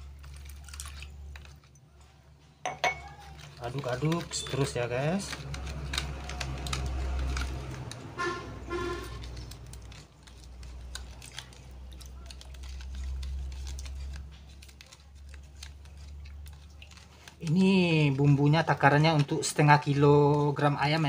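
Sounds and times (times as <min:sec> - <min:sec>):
metal spoon stirring in plastic bowl: 0:00.0 - 0:21.0
short horn toots: 0:08.2 - 0:09.2.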